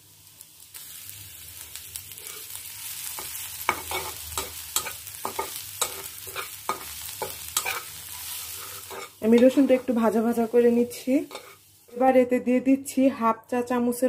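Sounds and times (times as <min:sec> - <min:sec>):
garlic sizzling in oil: 0:00.0 - 0:13.0
metal spatula scraping pan: 0:03.2 - 0:10.1, 0:11.2 - 0:11.7.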